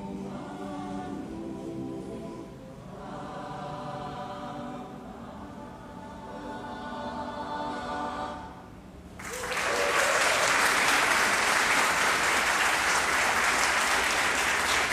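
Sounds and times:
choir holding chord: 0.0 - 8.8
audience applause: 9.2 - 14.9.

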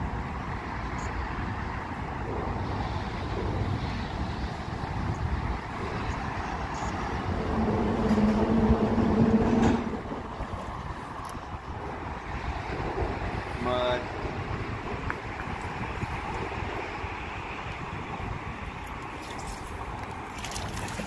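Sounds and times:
low rumble of traffic: 0.0 - 21.0
loud steady hum: 4.8 - 10.4.

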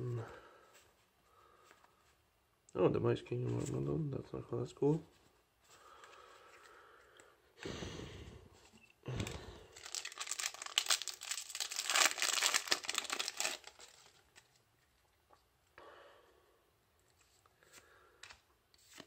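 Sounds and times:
wrapper rustle: 9.7 - 14.6
foil wrapper tearing and crinkling: 9.8 - 14.5.

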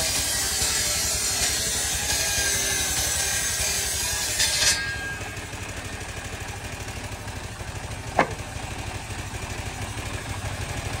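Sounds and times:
engine idling: 5.0 - 11.0
sharp knock: 8.2 - 8.5.

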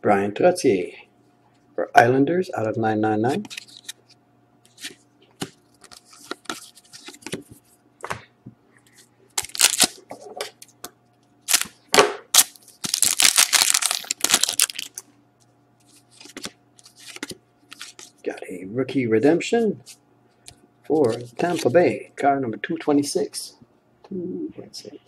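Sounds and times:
wrapper crinkling: 9.4 - 10.0, 11.5 - 11.7, 12.3 - 15.0.

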